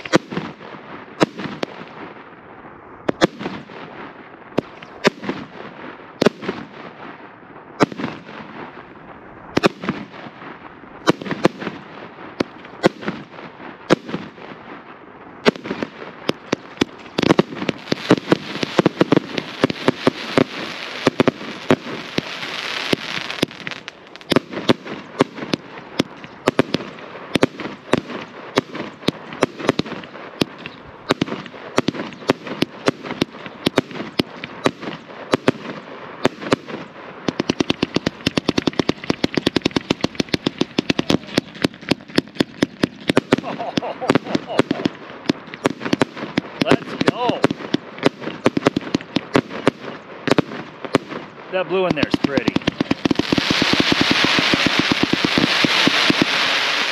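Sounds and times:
fireworks banging: 0.0s - 56.9s
firework hiss: 15.4s - 56.9s.

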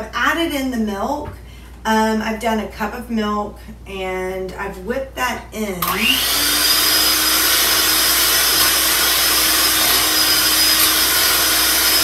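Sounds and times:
electric mixer motor whine: 5.8s - 12.0s.

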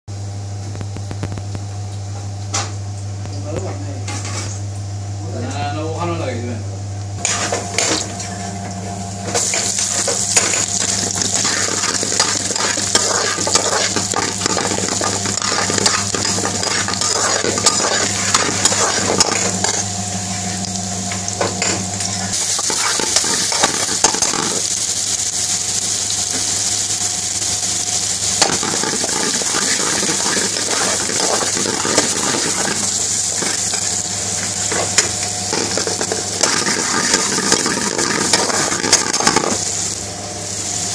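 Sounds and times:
garlic sizzling in hot oil: 7.2s - 40.9s
metal spoon scraping pan: 9.5s - 19.8s.

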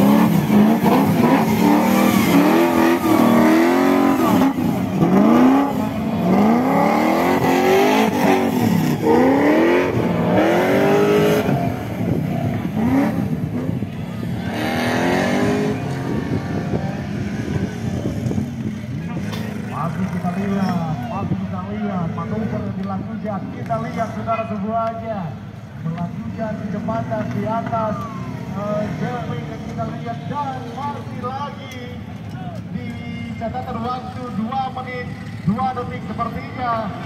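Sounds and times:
buggy engine revving: 0.0s - 20.6s.

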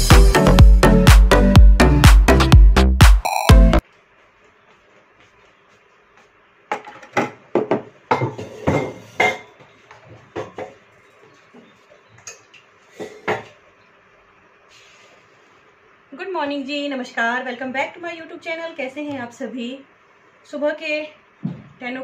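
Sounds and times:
dishes and cutlery clinking: 6.8s - 9.7s.

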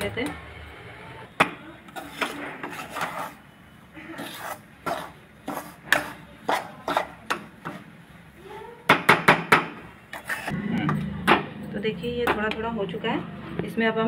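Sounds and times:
spatula scraping and knocking pan: 1.9s - 3.4s, 4.2s - 7.9s, 10.1s - 10.6s.

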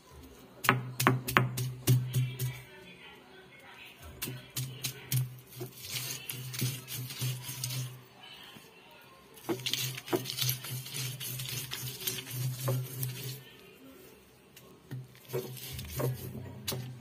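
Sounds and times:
stone grinding on stone slab: 9.4s - 13.4s.

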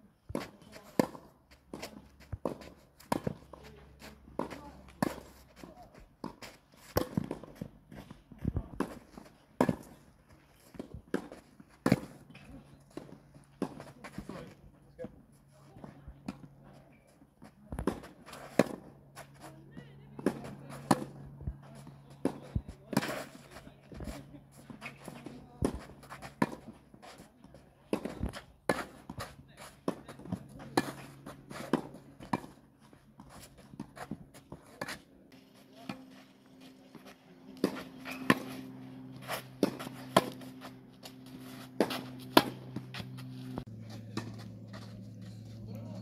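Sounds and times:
tennis balls struck by racket: 0.2s - 15.2s, 17.5s - 19.5s, 20.1s - 46.0s
low hum: 35.3s - 46.0s.

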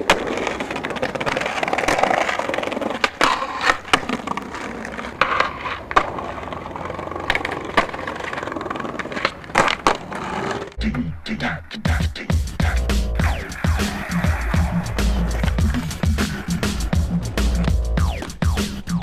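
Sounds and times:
skateboard clacks: 0.0s - 10.8s, 12.6s - 18.9s
skateboard wheels rolling on stone: 0.0s - 10.8s, 13.2s - 18.9s.

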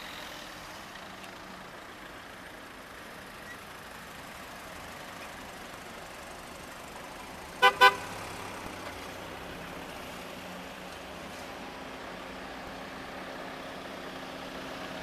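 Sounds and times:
cars driving slowly past: 0.0s - 15.0s
car horn tooting: 7.6s - 8.1s.

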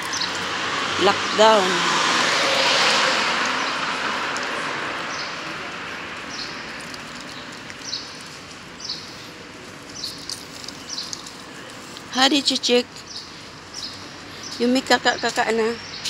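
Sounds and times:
street noise: 0.0s - 16.0s
bird chirping: 12.2s - 16.0s.

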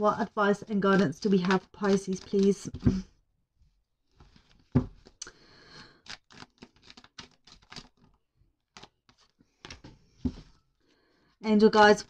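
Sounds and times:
cards being shuffled: 0.8s - 3.0s, 4.1s - 10.5s
cards sliding rustle: 0.9s - 3.0s, 4.1s - 10.5s
dull thump: 4.7s - 5.0s.

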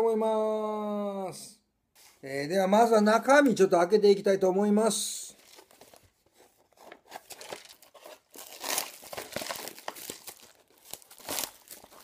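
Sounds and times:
plastic film crinkling: 5.4s - 12.0s.

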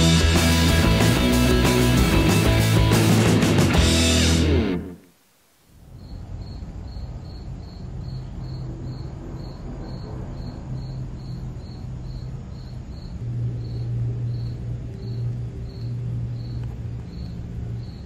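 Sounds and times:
cricket chirping: 5.8s - 18.0s.

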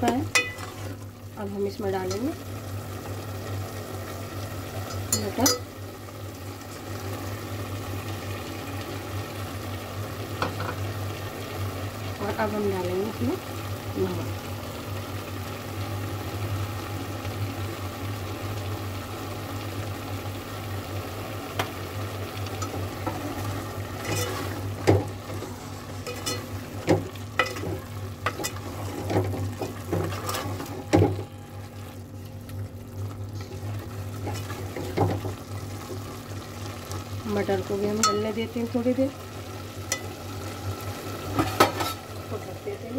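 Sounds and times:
frying sizzle: 0.0s - 42.9s
ladle scraping metal pot: 23.1s - 24.6s, 25.3s - 26.5s, 27.4s - 31.4s.

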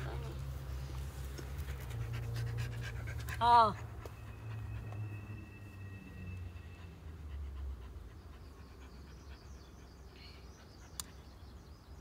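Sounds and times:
dog panting: 1.3s - 5.2s, 6.5s - 11.6s.

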